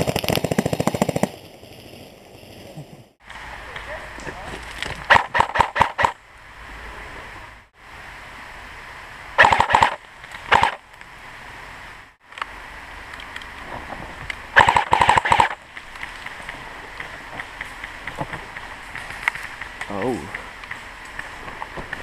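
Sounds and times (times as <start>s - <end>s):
airsoft rifle firing bursts: 5.1s - 6.2s, 9.4s - 10.8s, 14.6s - 15.6s.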